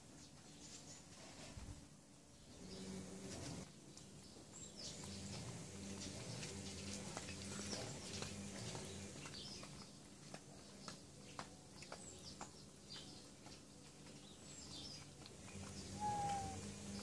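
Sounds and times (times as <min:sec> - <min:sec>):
faint bird chirps: 0:14.6 - 0:17.0.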